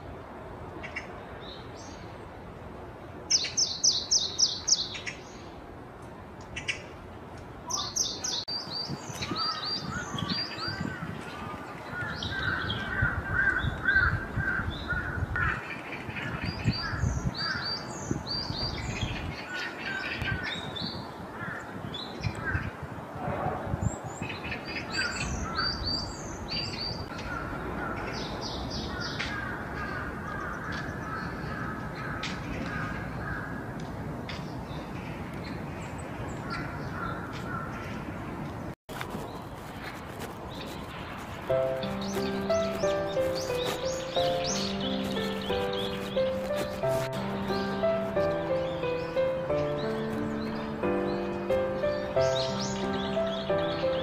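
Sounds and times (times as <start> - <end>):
songbirds chirping: 0.7 - 54.0
crow cawing: 28.9 - 33.6.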